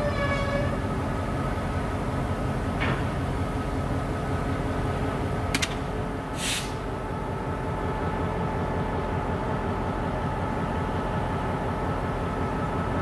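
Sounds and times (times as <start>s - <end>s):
diesel locomotive idling: 0.0s - 13.0s
short hiss: 6.3s - 6.9s.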